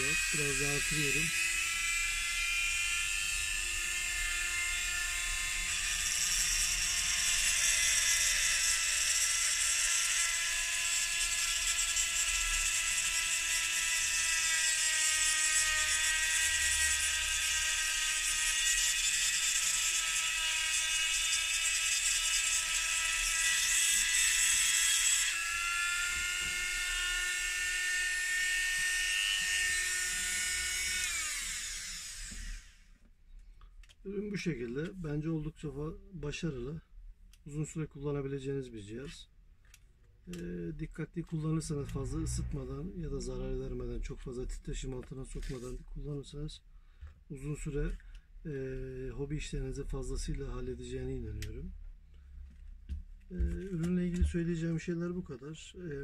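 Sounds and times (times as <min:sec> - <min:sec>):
rotary tool whine: 0:00.0 - 0:33.1, 0:41.6 - 0:46.4.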